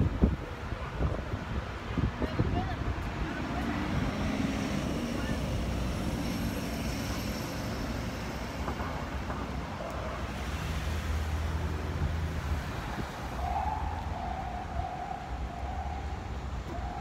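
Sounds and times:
wind on microphone: 0.0 - 4.3
cars passing with hiss: 0.0 - 17.0
vehicle engines rumbling: 0.0 - 17.0.

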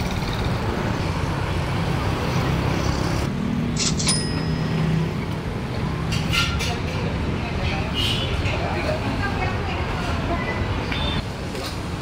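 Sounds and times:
motorbikes and cars passing: 0.0 - 12.0
road noise: 0.0 - 12.0.

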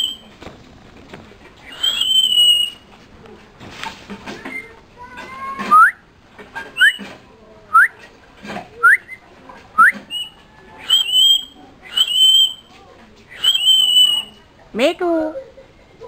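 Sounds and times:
bird whistling: 0.0 - 0.3, 1.6 - 2.8, 5.7 - 6.0, 6.7 - 7.1, 7.7 - 8.0, 8.8 - 9.2, 9.8 - 12.7, 13.3 - 14.4.

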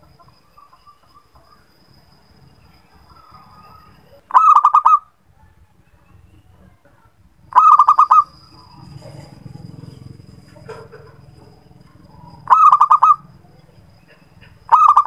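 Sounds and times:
dove cooing: 4.2 - 5.0, 7.5 - 11.5, 12.4 - 15.0.

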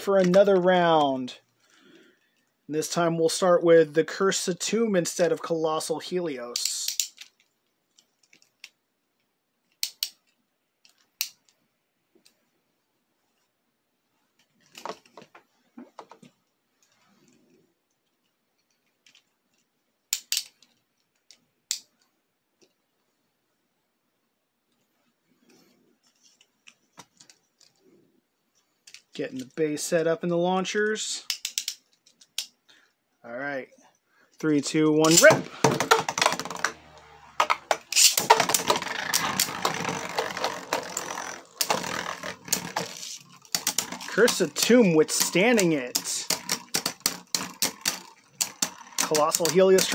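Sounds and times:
sharp plastic snaps: 9.7 - 11.6, 20.1 - 22.0, 31.3 - 32.6
plastic clicks and rattles: 18.6 - 22.8, 31.3 - 32.6, 35.0 - 49.9
spinning tops whirring: 34.6 - 49.9
spinning tops clacking: 35.0 - 49.9.

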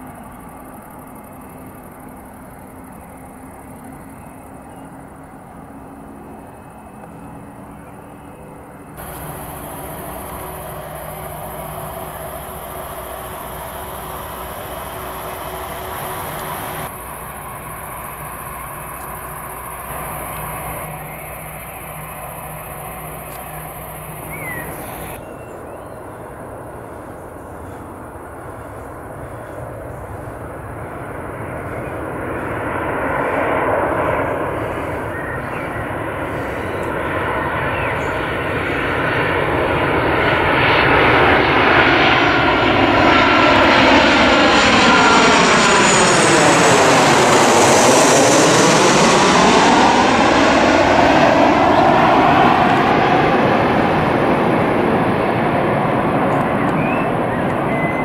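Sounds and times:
airport background rumble: 0.0 - 58.0
jet airliner passing overhead: 0.0 - 58.0
faint bird calls: 20.0 - 26.2, 34.6 - 38.3, 56.3 - 58.0.

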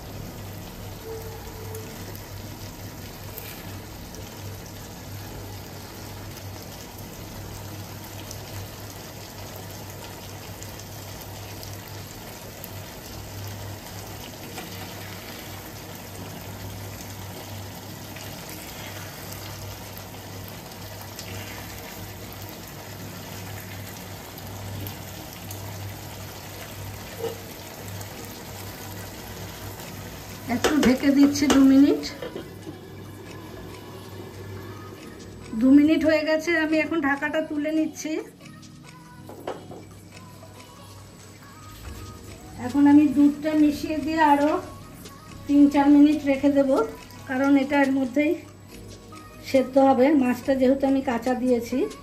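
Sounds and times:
gravy simmering and bubbling: 0.0 - 35.8.

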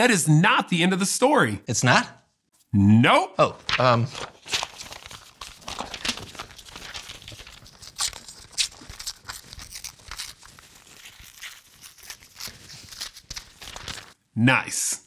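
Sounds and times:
paper tearing: 3.6 - 14.2.

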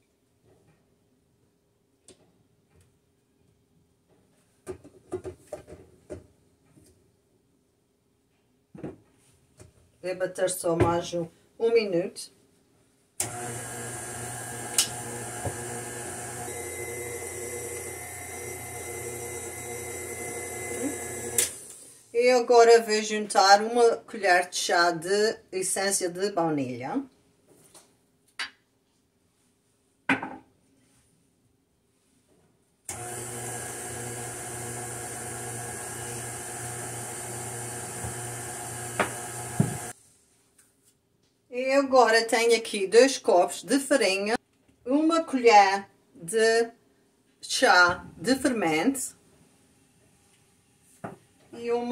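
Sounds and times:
stand mixer running: 13.2 - 21.7, 32.9 - 39.9.

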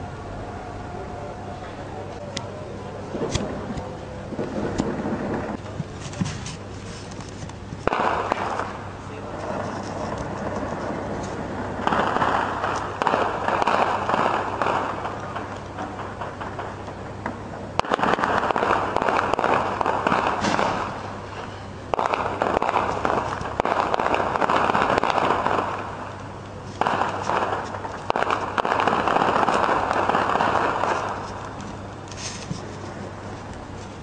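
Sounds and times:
steady low hum: 0.0 - 34.0
rapid crackling gunfire: 7.8 - 16.8, 17.8 - 21.2, 21.9 - 26.2, 26.8 - 31.6.

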